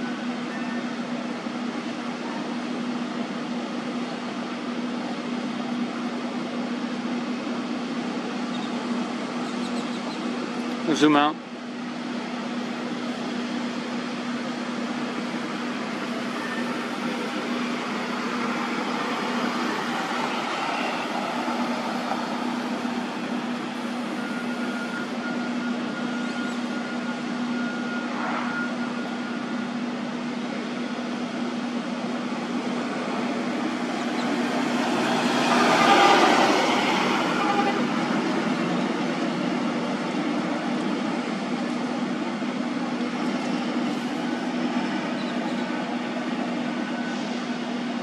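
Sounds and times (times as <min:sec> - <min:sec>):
machinery engine hum: 0:00.0 - 0:48.0
faint high whine: 0:23.8 - 0:31.8.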